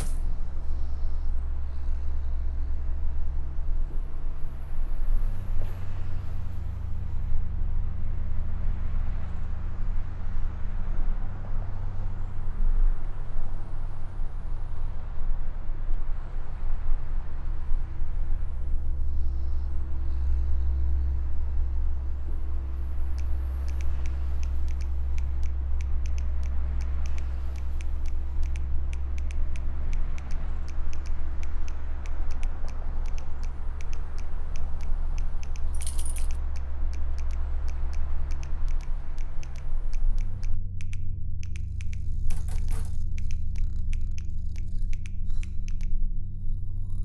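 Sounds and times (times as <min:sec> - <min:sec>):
steady low rumble: 0:00.0 - 0:47.0
light irregular clicks: 0:22.5 - 0:47.0.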